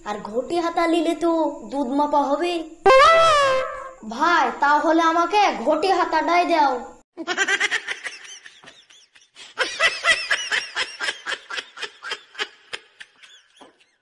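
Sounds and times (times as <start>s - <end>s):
person laughing: 7.2s - 14.0s.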